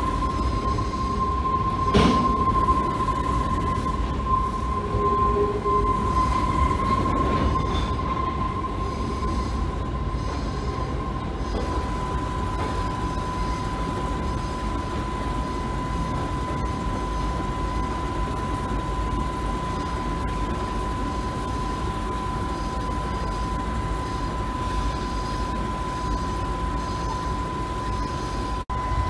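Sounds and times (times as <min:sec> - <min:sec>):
freight train rumbling on rails: 0:00.0 - 0:26.4
high-pitched wheel squeal: 0:00.2 - 0:11.0.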